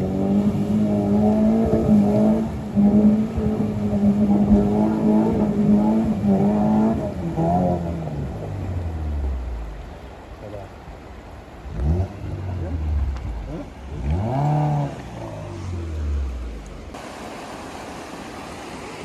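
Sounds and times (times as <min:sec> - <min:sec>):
car engine under throttle: 0:00.0 - 0:17.0.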